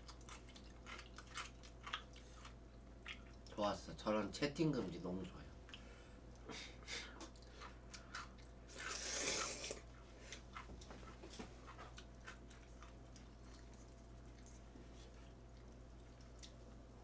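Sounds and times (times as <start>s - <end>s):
soft wet chewing: 0.0s - 3.8s, 5.1s - 17.0s
noodles slurped: 8.7s - 9.9s.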